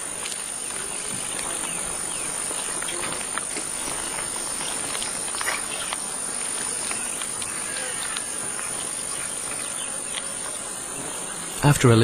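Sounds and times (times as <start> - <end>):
insect chorus shrill trill: 0.2 - 12.0
faint clicks: 2.5 - 10.6.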